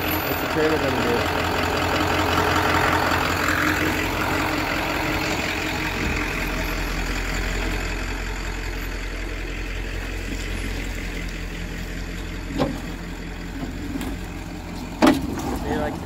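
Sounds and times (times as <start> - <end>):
truck engine running: 0.0 - 16.0
trailer clunk over rocks: 10.0 - 16.0.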